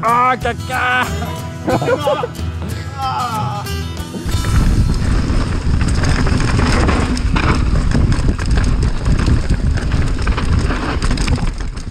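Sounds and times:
bike rattling: 4.1s - 11.9s
tyres knocking over roots: 4.2s - 11.9s
wind rumble on microphone: 4.2s - 11.9s.

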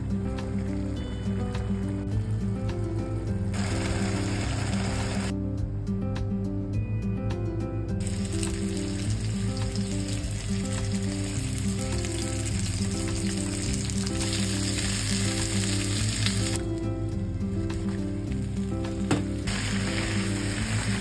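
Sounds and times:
fish sizzling in oil: 3.5s - 5.3s, 8.0s - 16.7s, 17.7s - 21.0s.

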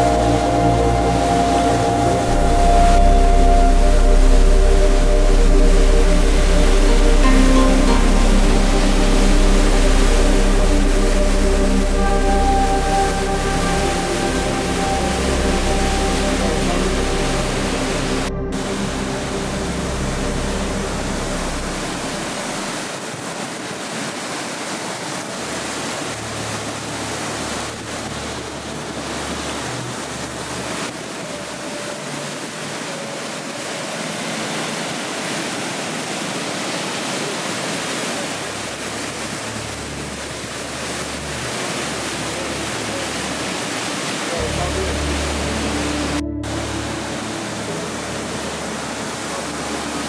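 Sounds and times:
low rumbles: 0.0s - 23.0s
whitewater roar: 0.0s - 50.0s.

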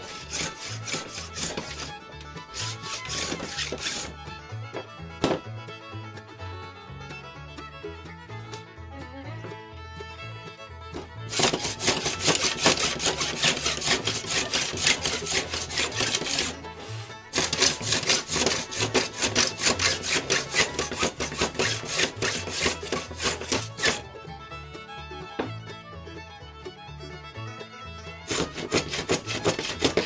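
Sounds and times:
hand plane scraping wood: 0.0s - 5.4s, 11.0s - 24.2s, 28.2s - 30.0s
fiddle music: 0.0s - 30.0s.

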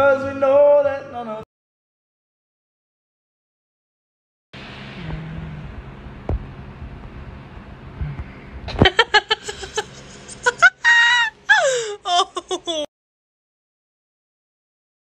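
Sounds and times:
young woman laughing hard: 8.7s - 12.9s.

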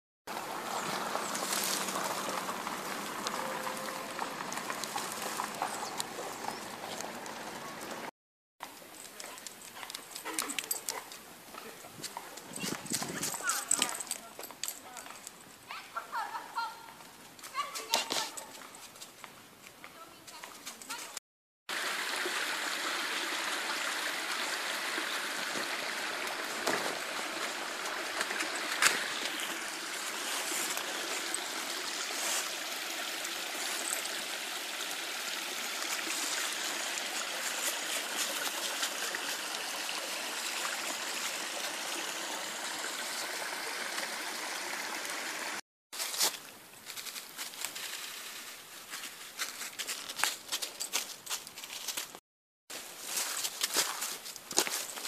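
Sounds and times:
rustling in dry leaves: 0.3s - 8.0s, 25.6s - 34.8s, 35.5s - 39.7s, 46.0s - 55.0s
stream trickling over stones: 0.3s - 15.6s, 21.7s - 55.0s.

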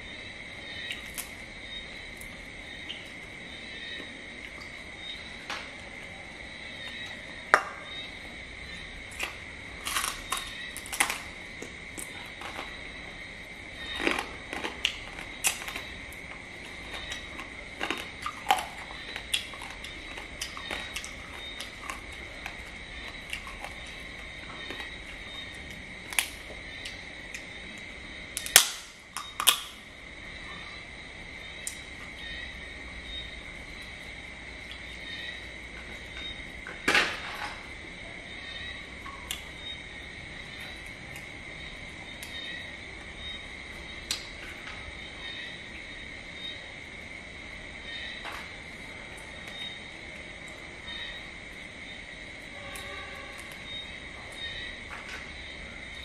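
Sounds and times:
crickets chirring: 0.0s - 56.0s
crab shells cracking and crunching: 0.8s - 1.4s, 9.1s - 12.8s, 13.8s - 27.5s, 28.4s - 29.8s.

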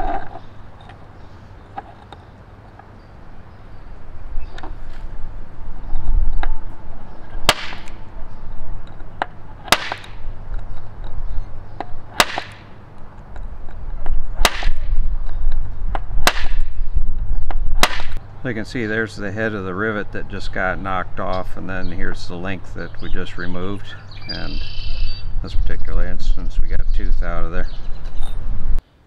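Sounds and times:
center punch snapping: 7.4s - 8.0s, 9.1s - 11.2s, 11.8s - 16.7s, 17.5s - 18.2s.

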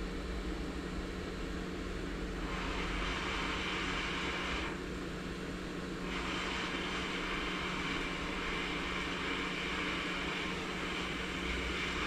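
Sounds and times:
hot-air gun hissing: 2.4s - 4.9s, 6.0s - 12.0s.

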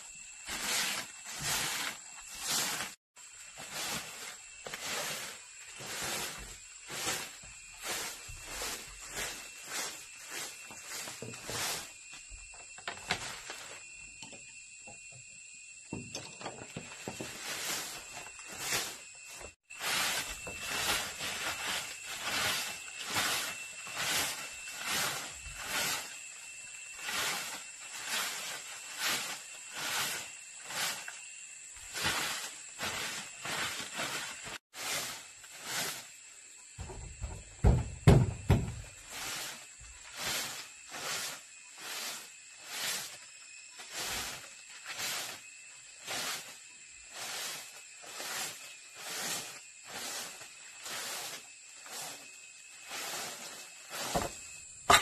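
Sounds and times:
broom sweeping wooden floor: 0.0s - 55.0s
knocks on floorboards: 36.8s - 38.8s.

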